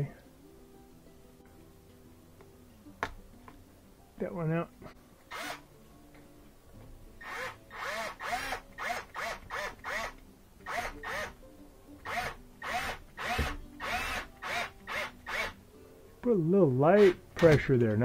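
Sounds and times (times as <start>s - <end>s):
cordless drill whirring in bursts: 5.3s - 5.6s, 7.2s - 11.3s, 12.1s - 15.6s.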